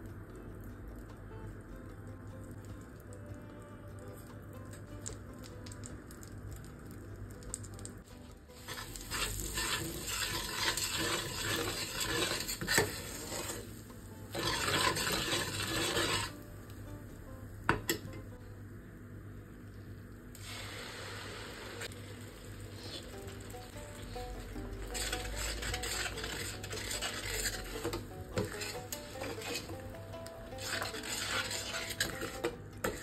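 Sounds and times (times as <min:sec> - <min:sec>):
oil sizzling: 0:00.0 - 0:33.0
metal spoon scraping a frying pan: 0:08.6 - 0:16.4, 0:22.8 - 0:33.0.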